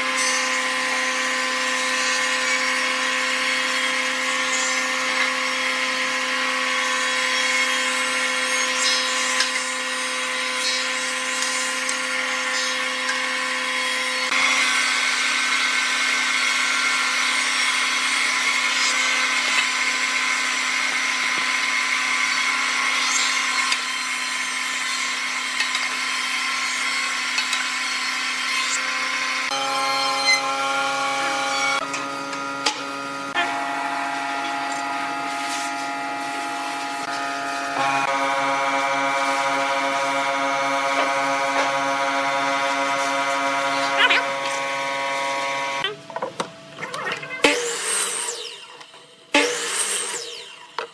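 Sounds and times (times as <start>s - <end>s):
thickness planer planing wood: 25.1s - 45.8s
machine hum: 29.4s - 46.8s.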